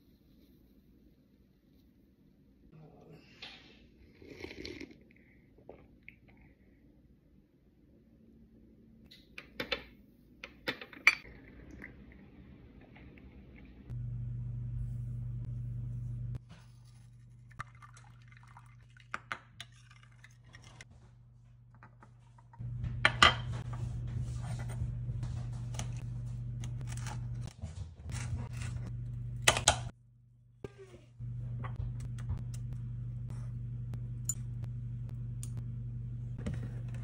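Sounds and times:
steady low hum: 13.6s - 17.6s, 20.9s - 37.0s.

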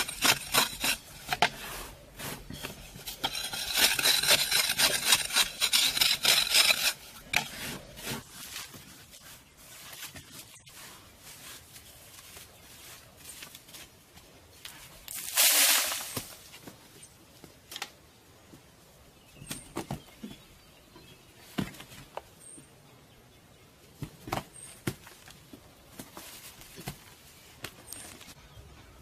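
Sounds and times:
digging tools scraping dirt: 0.0s - 13.9s.

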